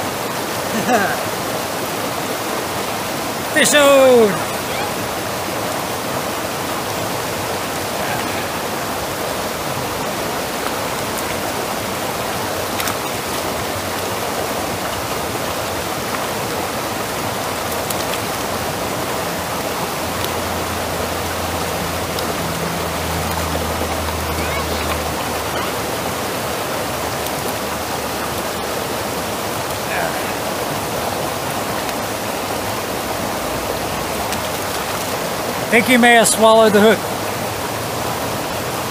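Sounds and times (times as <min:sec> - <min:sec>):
creek water rushing over rocks: 0:00.0 - 0:38.9.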